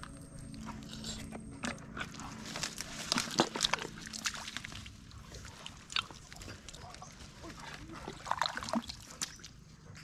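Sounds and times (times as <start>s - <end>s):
squelching in mud and water: 0.0s - 10.0s
sharp wet smacks and clicks: 2.6s - 7.2s, 7.8s - 9.6s.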